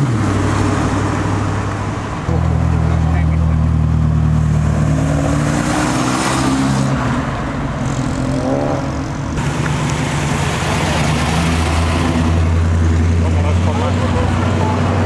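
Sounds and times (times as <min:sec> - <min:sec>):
low engine rumble: 0:00.0 - 0:05.0
cars accelerating past: 0:00.0 - 0:15.0.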